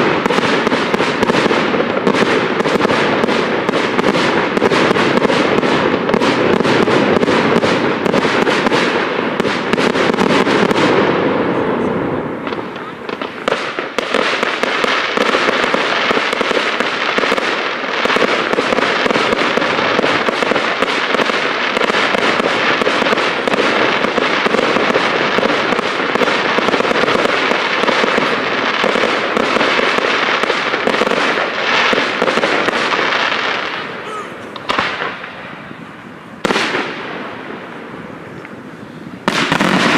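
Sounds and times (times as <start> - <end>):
fireworks crackling and popping: 0.0 - 39.9.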